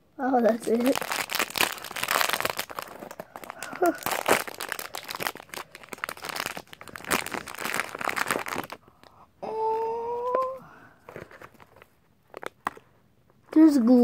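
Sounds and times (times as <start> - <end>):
plastic wrapper crinkling: 0.4 - 9.2, 11.1 - 12.9.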